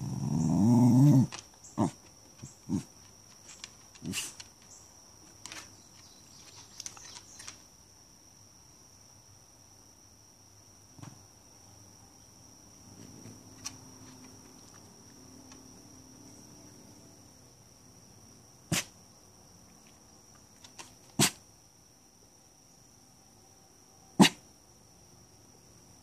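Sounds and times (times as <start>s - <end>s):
steady high insect-like tone: 0.0s - 26.0s
dog barking: 18.7s - 18.9s, 21.2s - 21.4s, 24.2s - 24.4s.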